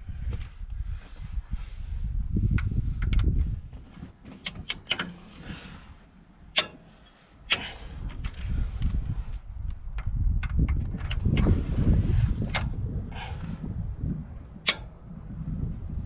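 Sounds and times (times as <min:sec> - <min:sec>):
low rumble: 0:07.7 - 0:16.0.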